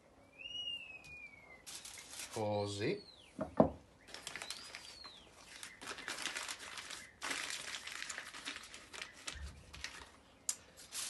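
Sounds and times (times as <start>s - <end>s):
aluminium foil crinkling: 1.6s - 2.7s, 4.0s - 11.0s.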